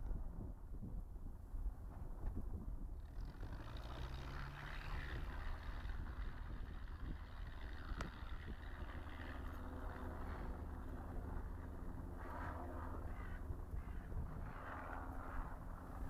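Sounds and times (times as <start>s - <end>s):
aircraft engine and propeller drone: 0.0s - 16.0s.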